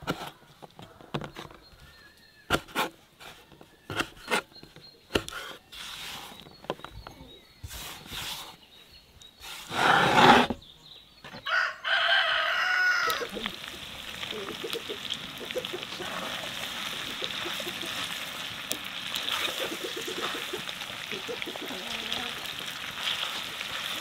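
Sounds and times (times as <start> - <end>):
hands scraping across wood: 5.1 - 6.7, 7.6 - 8.6, 9.4 - 10.6.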